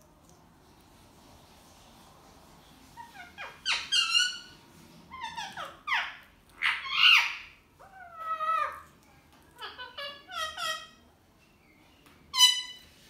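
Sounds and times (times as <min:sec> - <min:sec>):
parrots squawking: 0:03.0 - 0:08.9, 0:09.6 - 0:11.0, 0:12.3 - 0:12.8.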